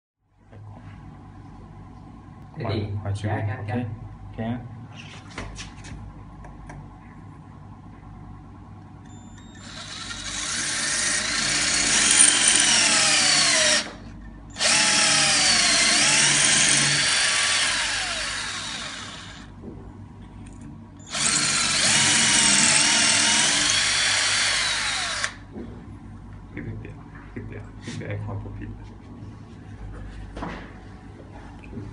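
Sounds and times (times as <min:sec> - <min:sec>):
drill grinding through tile: 0:09.4 - 0:14.0, 0:14.6 - 0:19.5, 0:21.1 - 0:25.4.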